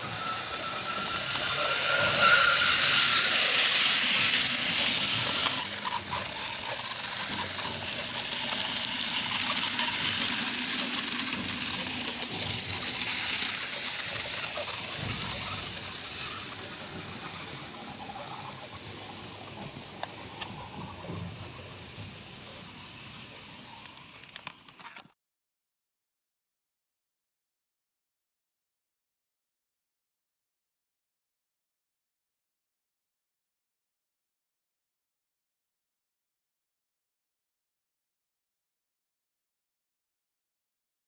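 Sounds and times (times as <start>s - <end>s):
model train rattling on track: 0.0s - 25.0s.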